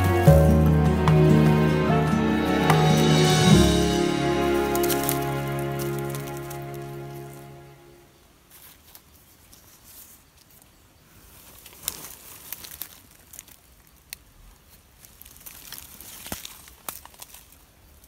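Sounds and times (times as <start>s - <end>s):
background music: 0.0s - 8.1s
dry leaves and twigs rustling: 3.1s - 7.7s, 8.4s - 18.0s.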